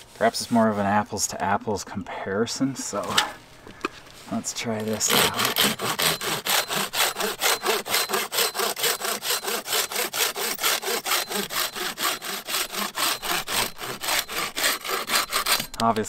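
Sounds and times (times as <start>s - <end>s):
hand saw cutting branch: 4.8s - 16.0s.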